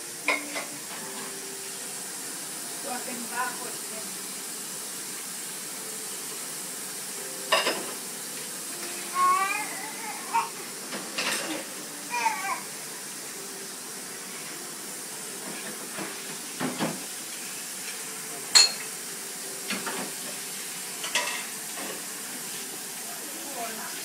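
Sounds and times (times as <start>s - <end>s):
steady hiss: 0.0s - 24.0s
dishes and utensils clinking: 0.2s - 1.4s, 7.4s - 12.3s, 15.4s - 17.1s, 17.8s - 19.0s, 19.6s - 20.4s, 21.0s - 22.1s.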